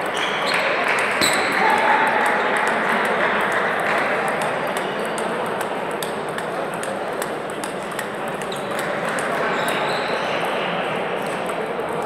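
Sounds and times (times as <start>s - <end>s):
many voices in a large hall: 0.0s - 12.0s
table tennis balls clicking: 2.3s - 9.8s.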